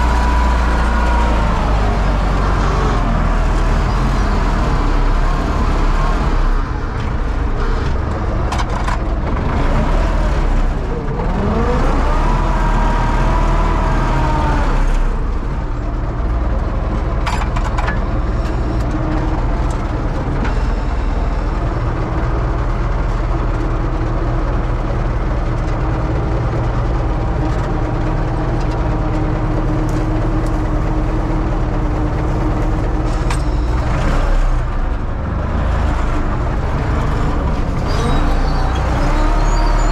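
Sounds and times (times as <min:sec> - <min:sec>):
rising engine whine: 0:00.0 - 0:08.4, 0:09.2 - 0:17.0, 0:25.6 - 0:39.9
tractor diesel engine running: 0:00.0 - 0:39.9.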